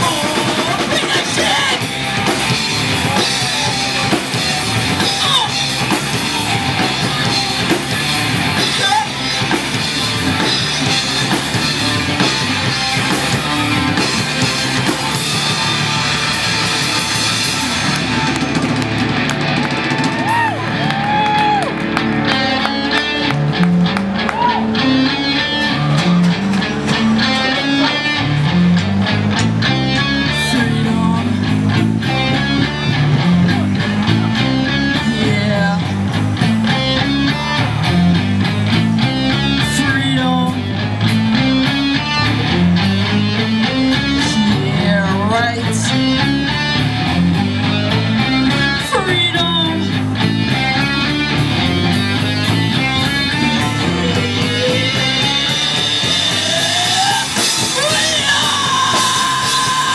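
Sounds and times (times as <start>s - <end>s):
drum beat: 0.0s - 24.5s, 50.5s - 59.9s
electric guitars and bass riff: 0.0s - 59.9s.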